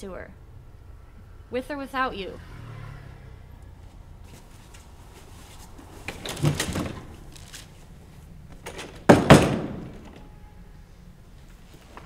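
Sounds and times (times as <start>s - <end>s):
door opening: 6.0s - 7.7s, 8.5s - 10.4s
door slamming shut: 6.1s - 7.2s, 8.5s - 10.4s.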